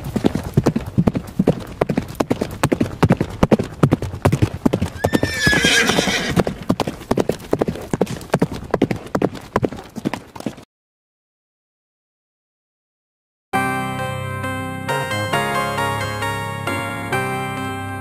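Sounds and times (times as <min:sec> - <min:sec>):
horse hooves clip-clopping: 0:00.0 - 0:10.6
horse whinnying: 0:05.0 - 0:06.7.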